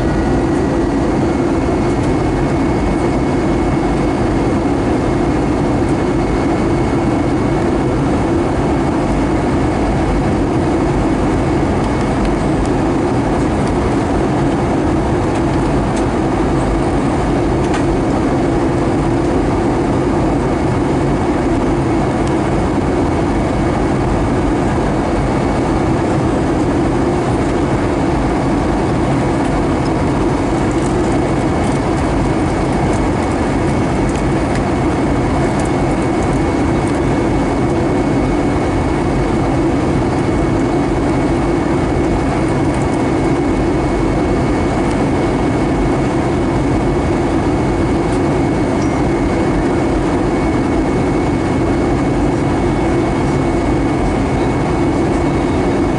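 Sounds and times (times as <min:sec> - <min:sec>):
airliner cabin drone: 0:00.0 - 0:55.9
faint high whine: 0:29.8 - 0:55.9.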